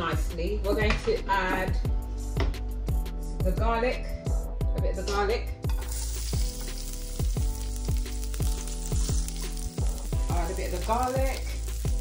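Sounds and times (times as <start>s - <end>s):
background music with beat: 0.1s - 12.0s
garlic sizzling in hot oil: 5.7s - 12.0s.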